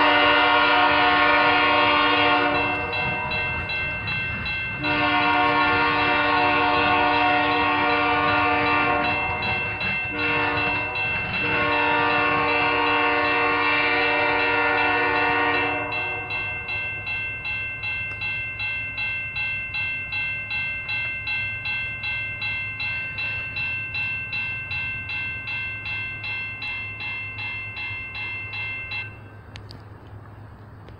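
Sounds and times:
locomotive horn: 0.0s - 3.8s, 4.7s - 16.8s
railroad crossing bell ringing: 0.0s - 29.8s
train rumbling: 0.0s - 30.9s.

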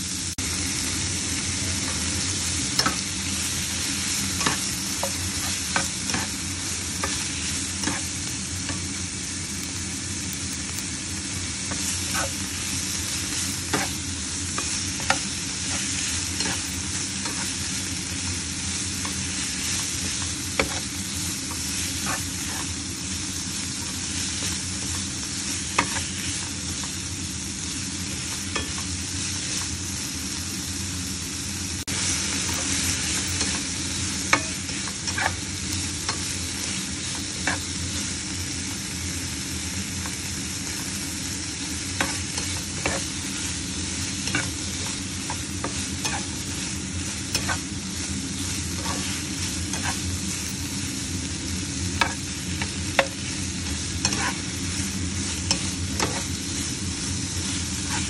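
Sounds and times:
meat sizzling in a pan: 0.0s - 58.0s
spatula scraping a pan: 3.6s - 8.9s, 11.7s - 12.4s, 13.3s - 17.7s, 18.7s - 22.8s, 24.1s - 26.5s, 31.9s - 35.5s, 42.0s - 50.5s, 52.0s - 56.7s, 57.3s - 58.0s.

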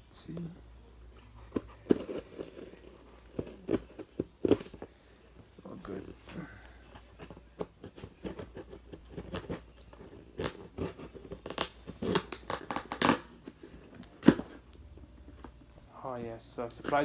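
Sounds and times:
packing tape tearing on cardboard: 1.4s - 4.9s, 7.2s - 14.8s, 16.7s - 17.0s.

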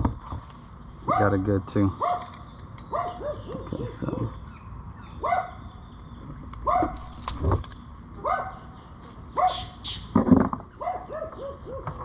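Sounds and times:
dog barking: 1.1s - 1.4s, 2.0s - 2.3s, 2.9s - 4.0s, 5.2s - 5.6s, 6.6s - 7.1s, 8.2s - 8.6s, 9.4s - 9.8s, 10.8s - 12.0s
dog yipping: 2.0s - 2.3s, 2.9s - 4.0s, 5.2s - 5.6s, 6.6s - 7.2s, 8.2s - 8.6s, 9.3s - 10.0s, 10.8s - 12.0s.

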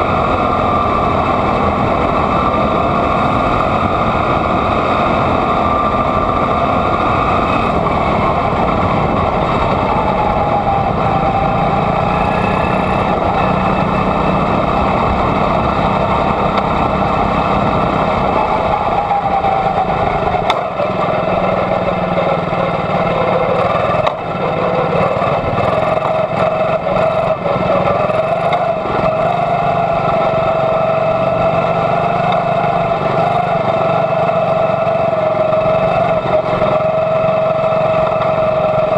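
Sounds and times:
racing car engine high drone: 0.0s - 38.9s.

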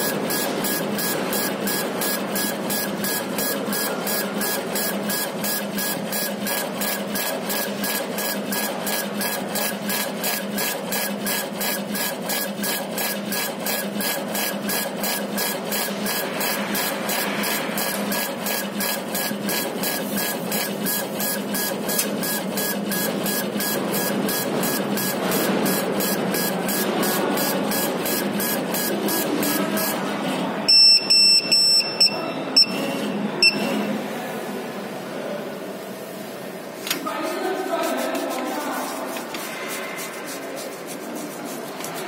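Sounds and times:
laser engraver motors pulsing: 0.0s - 30.0s.

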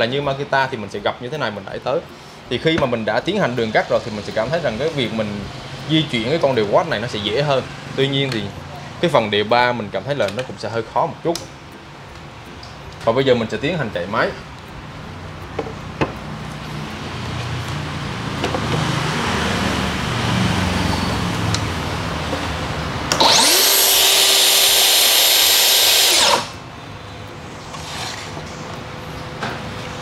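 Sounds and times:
saw blade high-pitched whine: 23.1s - 26.6s
track saw running: 23.1s - 26.6s.

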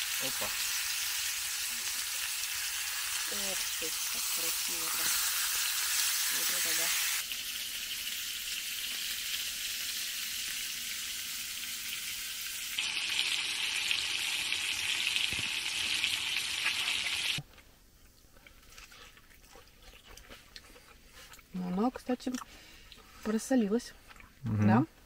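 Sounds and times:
meat sizzling in a skillet: 0.0s - 17.4s.

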